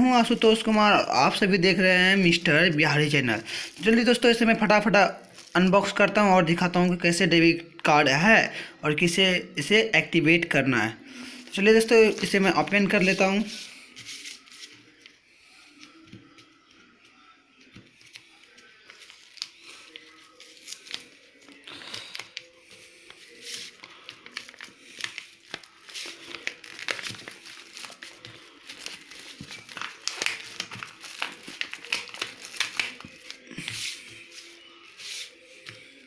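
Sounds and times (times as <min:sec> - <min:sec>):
paper envelope crinkling and tearing: 0:05.2 - 0:05.7, 0:18.0 - 0:36.0.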